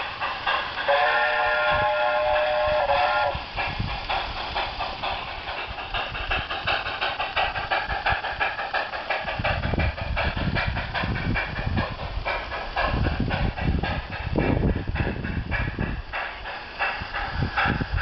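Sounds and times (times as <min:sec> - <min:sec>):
model steam train chuffing: 0:00.0 - 0:18.0
train whistle: 0:00.9 - 0:03.4.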